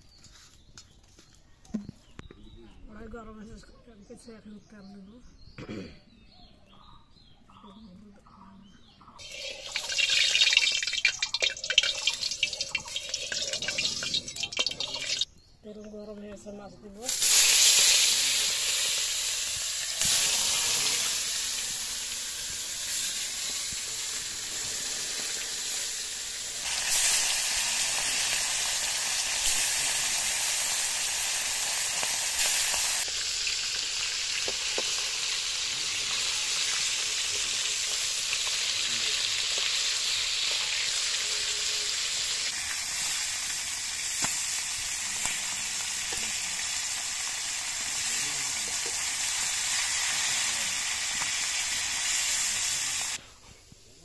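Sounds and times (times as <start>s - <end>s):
fish sizzling in hot oil: 9.2s - 15.3s, 17.1s - 53.2s.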